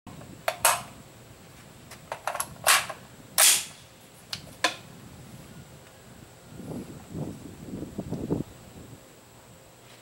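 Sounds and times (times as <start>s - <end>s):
faint gunshot cracks: 3.4s - 3.8s.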